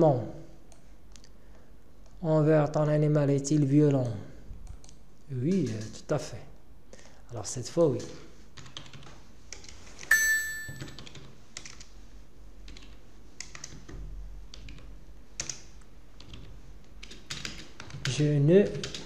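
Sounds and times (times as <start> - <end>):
bright chime: 10.1 - 11.0
keyboard keystrokes: 16.2 - 18.1.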